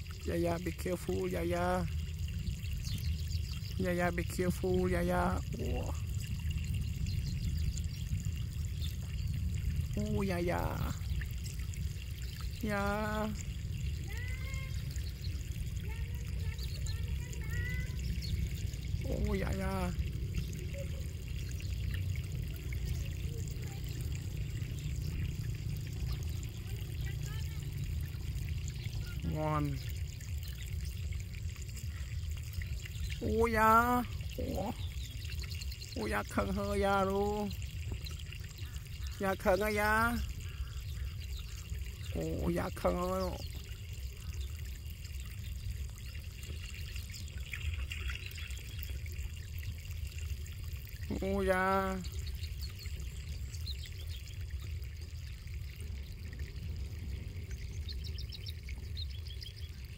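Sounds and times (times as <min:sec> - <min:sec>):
low rumble with faint hiss: 0:00.0 - 0:59.9
wind rumble on microphone: 0:01.6 - 0:26.6
faint bird chirps: 0:05.5 - 0:49.5.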